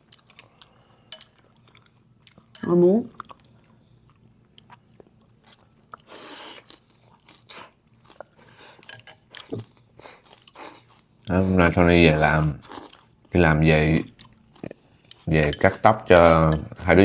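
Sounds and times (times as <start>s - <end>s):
person chewing: 0.0s - 13.4s, 14.0s - 15.8s
short hissing sounds: 6.1s - 6.6s.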